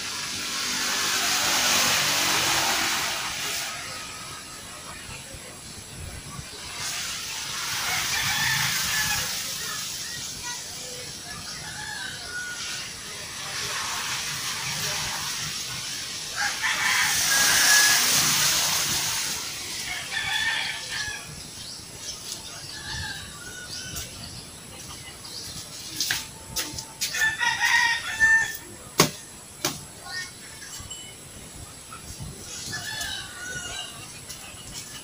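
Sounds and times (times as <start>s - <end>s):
rooster crowing: 16.4s - 18.3s, 27.1s - 28.6s
sharp knocks: 29.0s - 29.8s.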